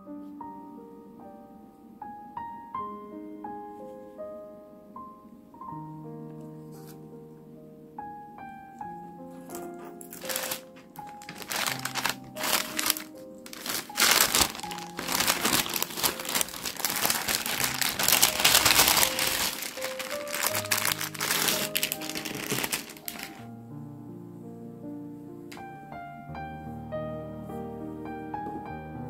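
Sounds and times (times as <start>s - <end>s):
soft piano music: 0.0s - 29.0s
paper bag crinkling: 9.9s - 23.5s.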